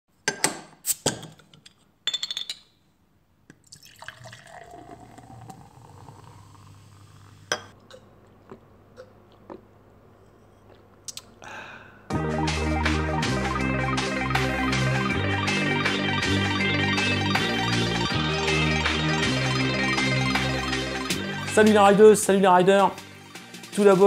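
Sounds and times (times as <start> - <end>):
liquid dripping: 3.5 - 5.6
music: 12.1 - 24.0.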